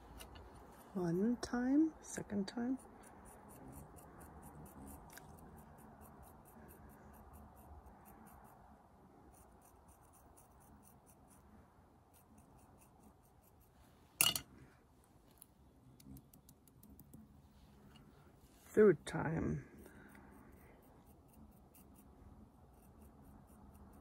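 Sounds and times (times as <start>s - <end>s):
tool scratching clay: 2.8s - 8.6s, 9.3s - 11.5s, 20.1s - 24.0s.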